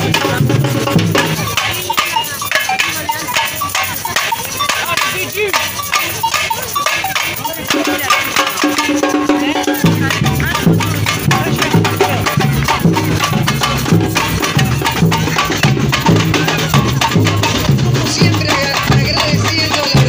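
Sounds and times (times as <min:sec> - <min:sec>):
deep bass drum beats: 0:00.0 - 0:02.1, 0:07.7 - 0:20.0
fast snare and hand drums: 0:00.0 - 0:20.0.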